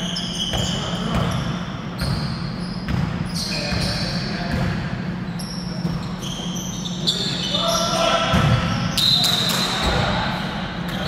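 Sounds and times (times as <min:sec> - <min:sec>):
sneaker squeaks: 0:00.0 - 0:11.0
basketball bouncing on court: 0:00.4 - 0:04.9, 0:08.2 - 0:09.0.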